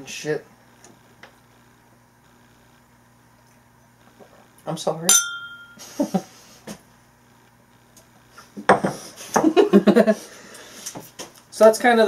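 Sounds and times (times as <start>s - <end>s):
glasses set down on wood: 8.6s - 9.5s.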